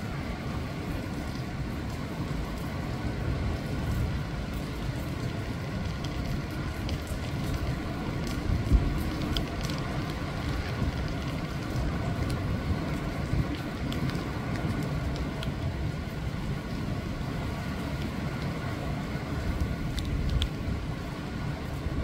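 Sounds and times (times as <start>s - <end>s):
faint rain ticks: 0.0s - 22.0s
waves breaking over rocks: 0.0s - 22.0s.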